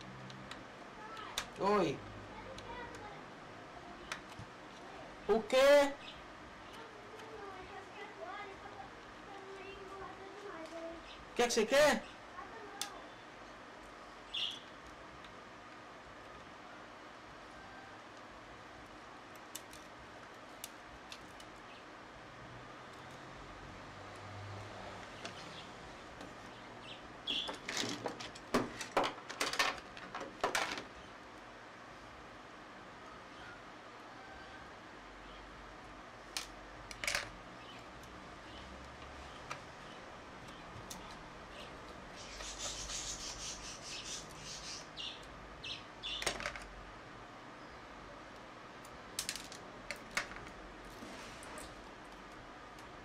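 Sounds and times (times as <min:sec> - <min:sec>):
light scratching and rustling: 0:40.8 - 0:44.9, 0:50.8 - 0:51.9.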